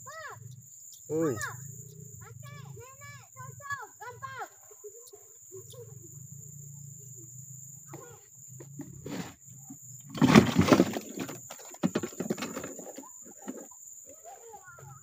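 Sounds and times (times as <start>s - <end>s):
high-pitched insect drone: 0.0s - 10.1s.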